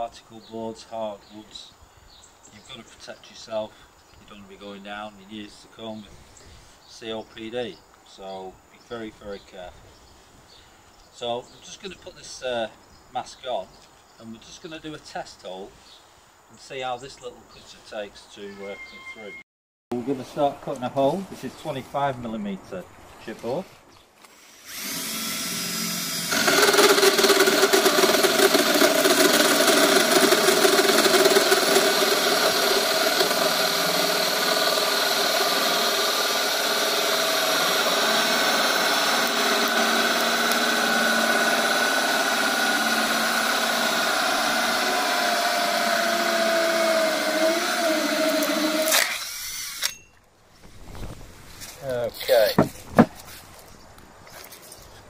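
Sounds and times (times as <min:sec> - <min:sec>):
cordless drill with hole saw cutting: 0:24.2 - 0:50.1.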